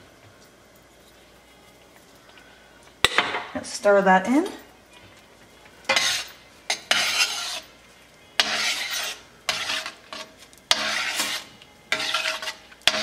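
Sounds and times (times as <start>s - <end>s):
utensil scraping metal pan: 5.9s - 7.7s, 8.4s - 13.0s.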